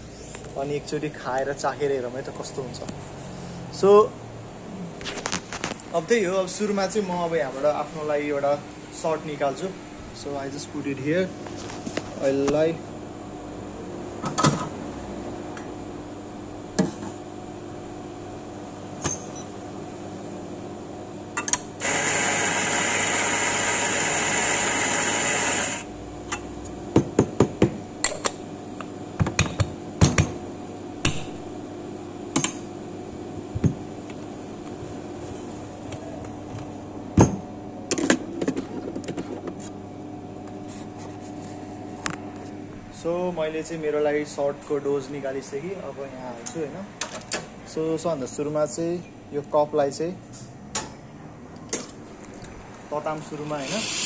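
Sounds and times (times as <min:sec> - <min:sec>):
electric coffee grinder running: 0:21.8 - 0:25.9, 0:53.4 - 0:54.0.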